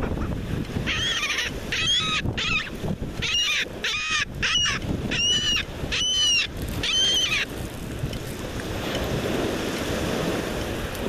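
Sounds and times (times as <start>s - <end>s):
gull calling: 0.0s - 7.5s
surf washing: 0.0s - 11.0s.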